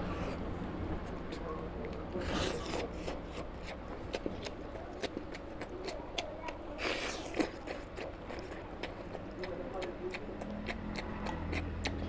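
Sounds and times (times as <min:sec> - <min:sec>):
wet chewing and lip smacks: 0:01.0 - 0:12.0.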